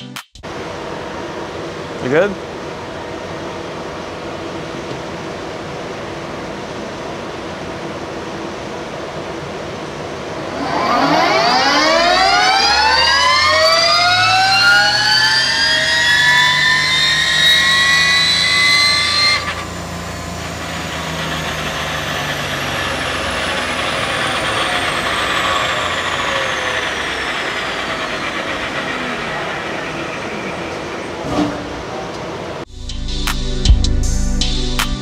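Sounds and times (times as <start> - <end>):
electric motor whining: 10.0 - 31.2.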